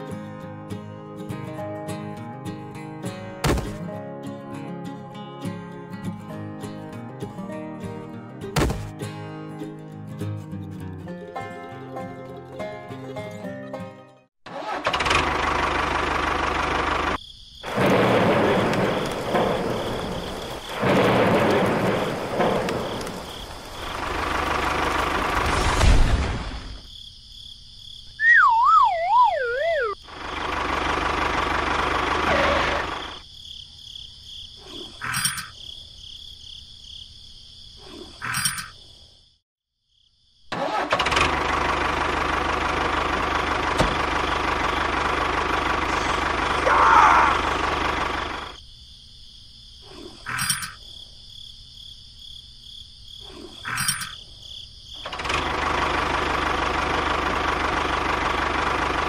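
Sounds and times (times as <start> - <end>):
tractor engine running: 14.5 - 25.8, 29.0 - 33.2, 40.5 - 48.6, 55.0 - 59.0
wavering whistle falling in pitch: 28.2 - 30.0.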